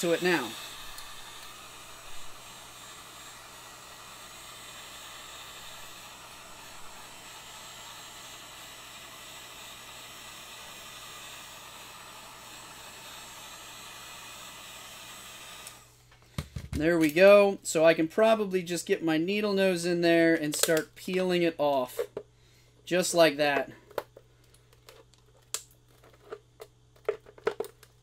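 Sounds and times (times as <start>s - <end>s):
heat gun blowing hot air: 0.0s - 17.5s.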